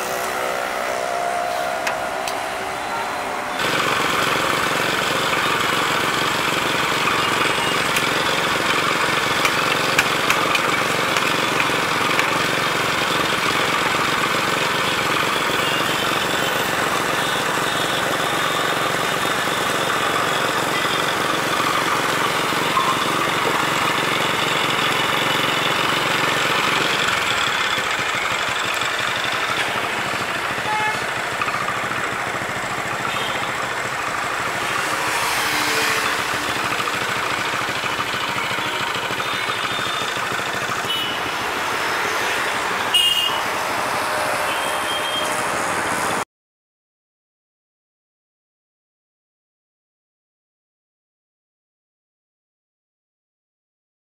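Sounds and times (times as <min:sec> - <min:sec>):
small engine running: 0:00.0 - 0:46.2.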